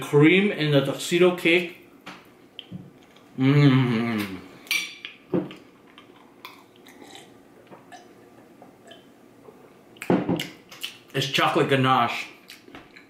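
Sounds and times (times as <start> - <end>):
man humming with enjoyment: 3.4 - 4.5.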